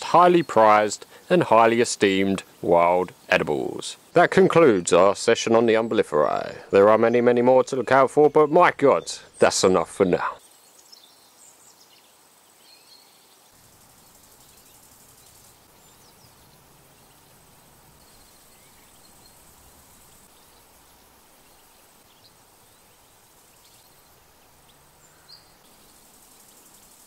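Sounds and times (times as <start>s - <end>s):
bush-cricket buzzing: 0.1s - 7.3s, 9.7s - 27.0s
faint bird chirps: 5.8s - 27.0s.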